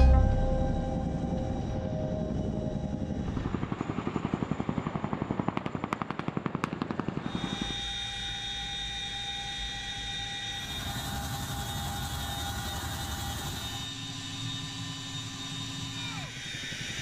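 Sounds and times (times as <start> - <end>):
helicopter rotor thumping: 0.0 - 7.7
turbine whine: 0.0 - 17.0.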